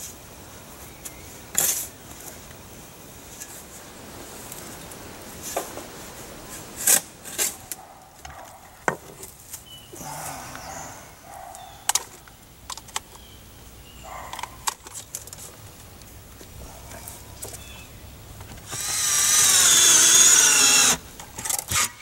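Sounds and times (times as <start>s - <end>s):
shovel digging dirt: 6.6s - 7.8s, 18.7s - 22.0s.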